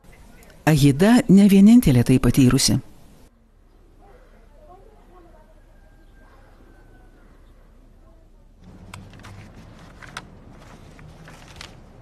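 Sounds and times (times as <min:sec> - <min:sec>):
paper pages rustling: 0:08.6 - 0:12.0.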